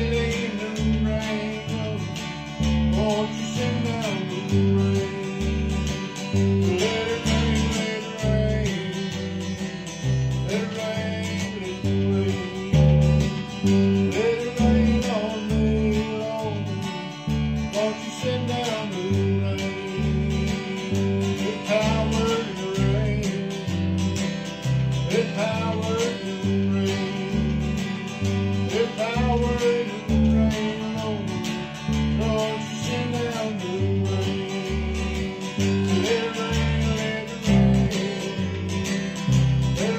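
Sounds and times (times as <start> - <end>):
electric bass notes: 0.0 - 39.9
person singing: 0.0 - 39.9
strummed acoustic guitar: 0.0 - 39.9.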